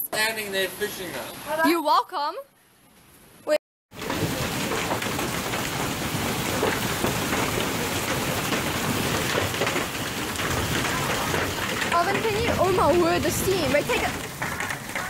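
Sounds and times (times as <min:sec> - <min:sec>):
heavy rain pouring: 0:03.9 - 0:15.0.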